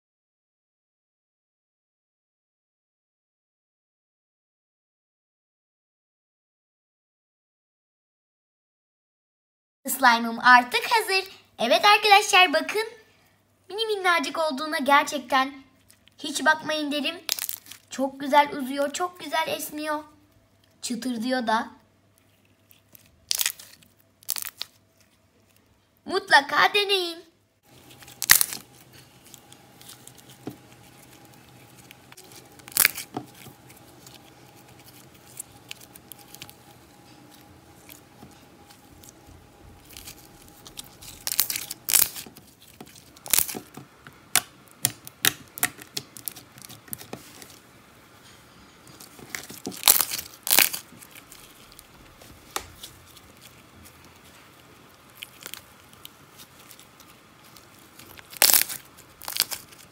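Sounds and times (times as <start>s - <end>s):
slime crackling and popping: 17.2s - 17.9s, 22.2s - 25.7s, 27.7s - 47.7s, 48.8s - 59.9s.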